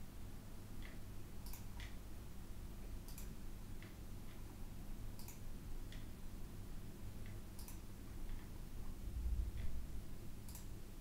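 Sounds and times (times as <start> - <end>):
room hum: 0.0 - 11.0
computer mouse clicks: 0.8 - 2.0, 3.1 - 4.4, 5.2 - 6.1, 7.2 - 8.5, 10.4 - 10.8.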